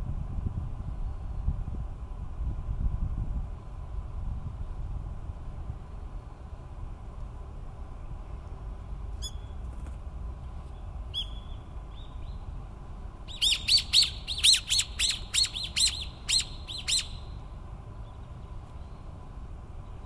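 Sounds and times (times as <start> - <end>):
kingfisher high piping calls: 13.3 - 17.3.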